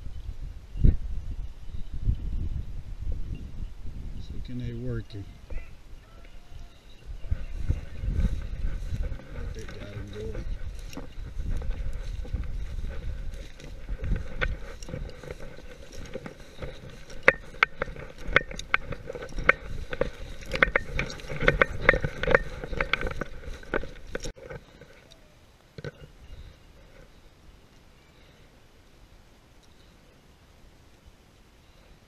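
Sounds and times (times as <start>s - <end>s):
footsteps in dry grass: 4.0s - 27.3s.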